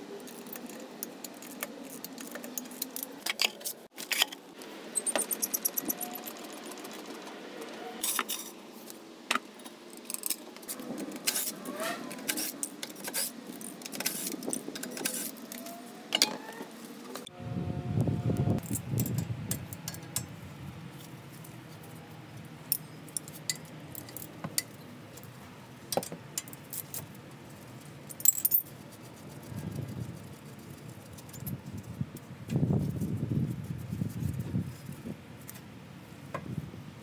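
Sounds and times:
hand tools clinking on metal: 22.7 - 25.3, 28.0 - 28.7.

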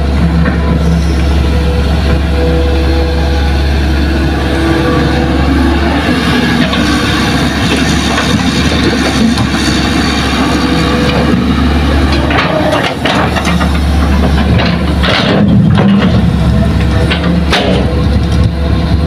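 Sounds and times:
excavator diesel engine: 0.0 - 19.0.

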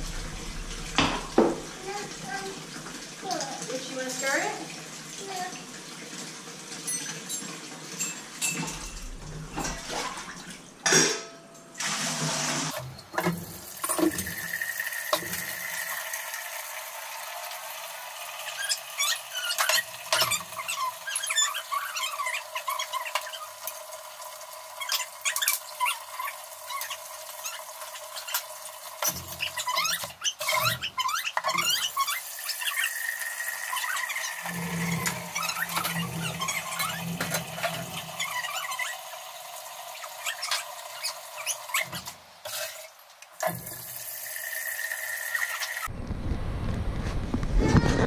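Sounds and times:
steady rushing noise: 0.0 - 1.8
utensils clinking on plate and bowls: 6.8 - 10.2, 10.8 - 11.7, 18.5 - 23.8
metal clinks of measuring cups: 6.9 - 9.0
utensil squeaks: 18.4 - 23.6, 24.8 - 28.5, 29.3 - 39.1, 39.9 - 42.1.

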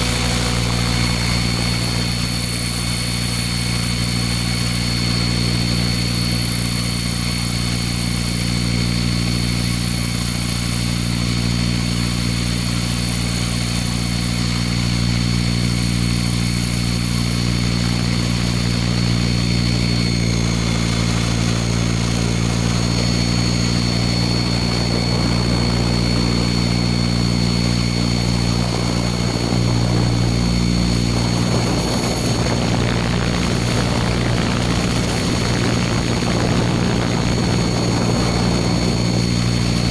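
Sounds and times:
model helicopter rotor whine: 0.0 - 39.9
wind rushing over microphone: 0.0 - 39.9.

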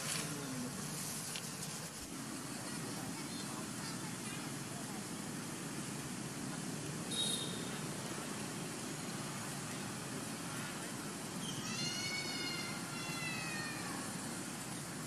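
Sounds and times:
macaque high-pitched call: 11.4 - 14.2.

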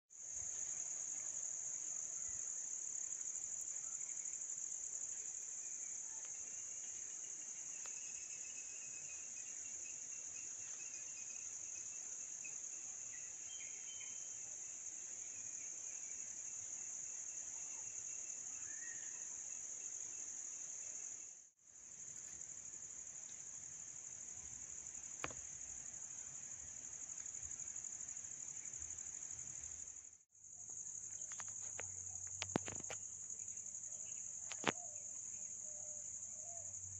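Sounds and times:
insects droning: 0.2 - 36.9
faint chirping: 5.6 - 14.5.

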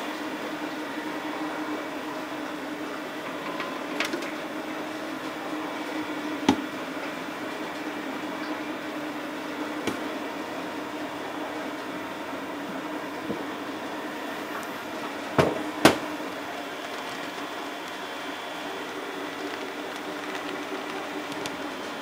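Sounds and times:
factory machinery hum: 0.0 - 22.0.

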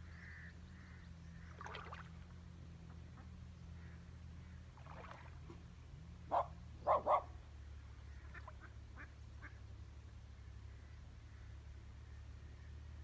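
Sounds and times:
low background hum: 0.0 - 13.0
dog barking: 6.3 - 7.4.

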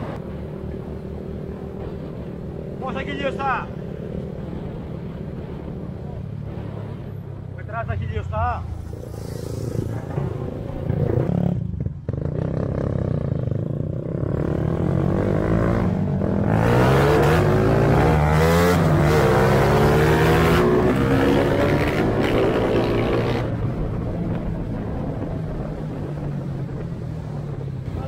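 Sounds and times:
motorcycle engine accelerating: 8.7 - 28.0.

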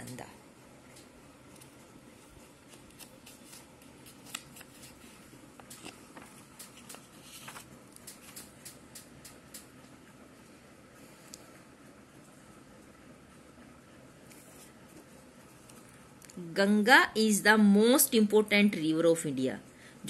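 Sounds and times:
paper pages rustling: 1.4 - 8.8.

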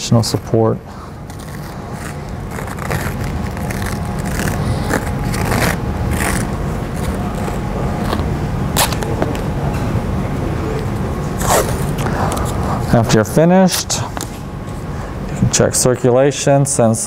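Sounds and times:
steady low hum: 0.0 - 17.0
tape peeling off roll: 0.4 - 9.5.

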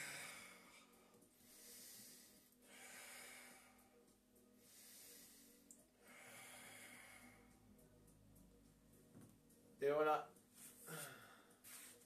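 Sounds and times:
man breathing slowly: 0.0 - 8.0, 10.6 - 12.0.

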